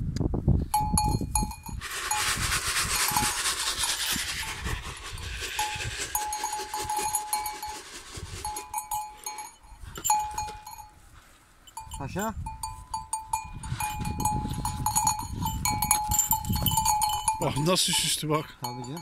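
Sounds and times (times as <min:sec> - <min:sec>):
goat bell clanking: 0:00.7 - 0:02.3, 0:05.6 - 0:19.0
rustling noise: 0:01.2 - 0:12.0.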